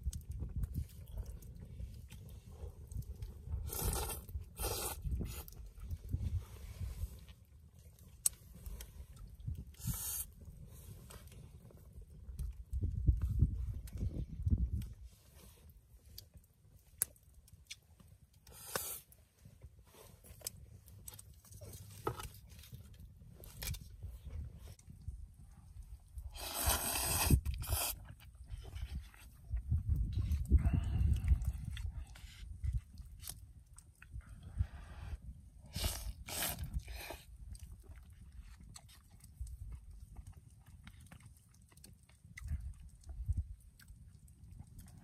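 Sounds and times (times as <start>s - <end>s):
campfire crackling and popping: 0.0s - 6.2s, 7.1s - 15.0s, 15.6s - 30.6s, 35.6s - 45.0s
person chewing: 2.9s - 5.6s, 35.7s - 45.0s
rustling hiss: 18.5s - 19.1s, 26.3s - 28.0s.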